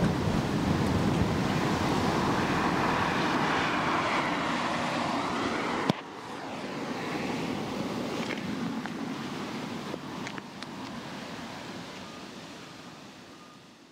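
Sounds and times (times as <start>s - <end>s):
car engine: 0.0s - 7.5s.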